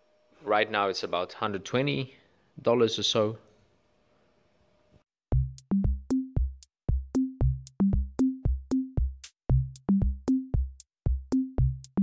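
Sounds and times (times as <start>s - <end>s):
electronic music with drum-machine beat: 5.3s - 12.0s.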